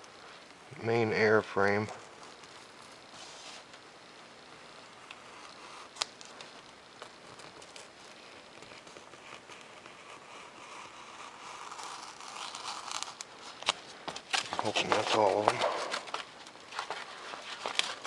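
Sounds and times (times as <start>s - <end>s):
knife scratching through foam: 2.6s - 3.7s, 7.8s - 13.6s.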